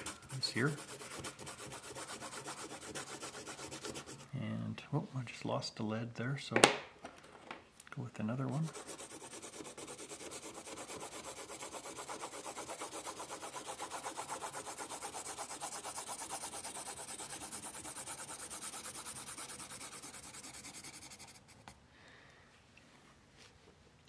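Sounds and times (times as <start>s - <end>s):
pencil scratching on paper: 0.0s - 4.3s, 8.5s - 21.8s.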